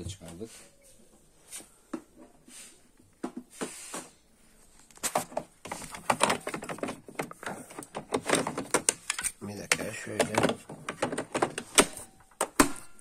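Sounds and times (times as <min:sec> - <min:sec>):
machine parts clicking and knocking: 0:05.6 - 0:12.9.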